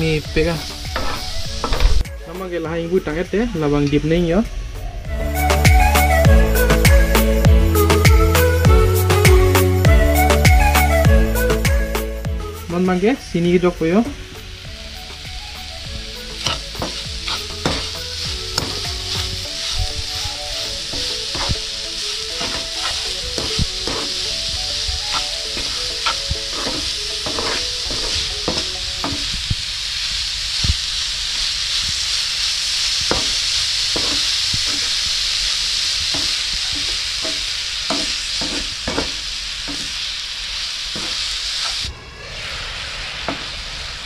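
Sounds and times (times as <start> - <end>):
carrots sizzling in a frying pan: 0.0 - 4.3, 12.6 - 44.0
spatula scraping and tapping pan: 1.0 - 1.9, 16.4 - 20.0, 20.9 - 21.6, 22.4 - 24.3, 25.0 - 29.2, 33.1 - 35.0, 36.1 - 40.0, 40.9 - 41.8.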